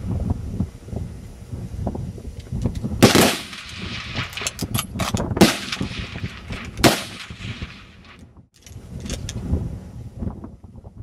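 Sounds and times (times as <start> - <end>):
rifle shots with echo: 3.0 - 4.6, 5.4 - 8.2.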